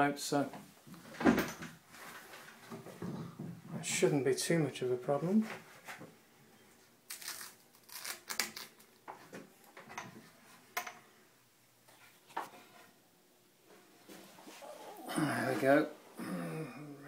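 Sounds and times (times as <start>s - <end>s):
rustles and light knocks: 0.5s - 4.0s.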